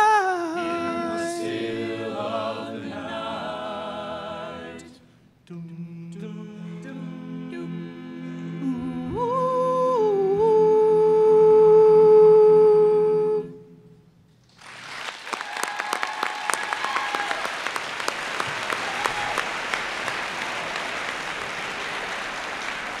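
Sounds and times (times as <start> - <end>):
a cappella group singing chord: 0.0 - 13.7
audience applause: 14.5 - 23.0
audience cheering: 14.6 - 23.0.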